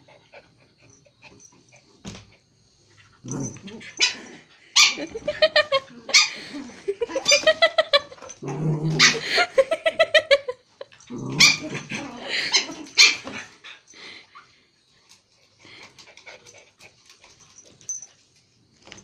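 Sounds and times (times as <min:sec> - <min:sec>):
puppies yipping and barking: 0:03.5 - 0:06.5, 0:07.1 - 0:08.4, 0:11.4 - 0:13.4.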